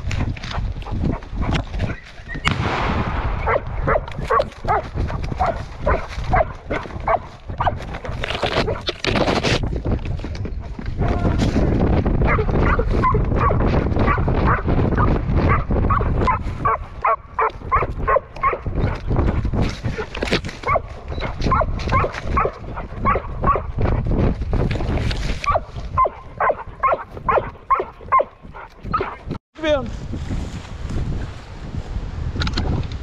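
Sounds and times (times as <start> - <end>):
wind rumble on microphone: 0.0 - 33.0
dog barking and yipping: 3.4 - 8.9, 12.2 - 19.1, 19.9 - 24.0, 25.4 - 29.3.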